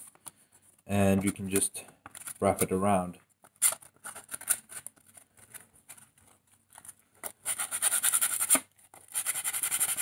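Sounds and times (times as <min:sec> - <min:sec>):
sandpaper rubbing wood: 0:07.4 - 0:10.0
sandpaper scratching and rustling: 0:07.4 - 0:10.0.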